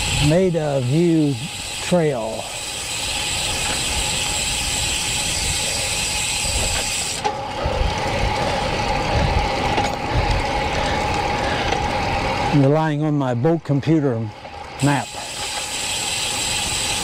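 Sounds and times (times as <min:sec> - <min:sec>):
bike freewheel hub ticking: 0:00.0 - 0:17.0
steady riding hum: 0:00.0 - 0:17.0
wind buffeting microphone: 0:07.6 - 0:12.6.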